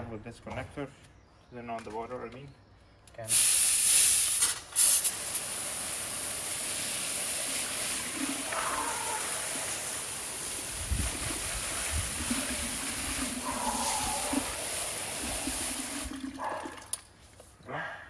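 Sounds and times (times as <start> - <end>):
hose water spraying on concrete: 3.3 - 16.6.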